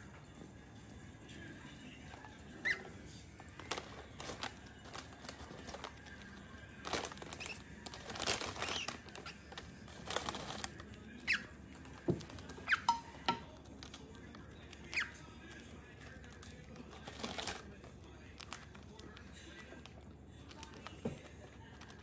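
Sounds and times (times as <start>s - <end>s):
bird pecking: 0.0s - 22.0s
plastic bag crinkling: 3.5s - 11.0s, 16.2s - 17.8s.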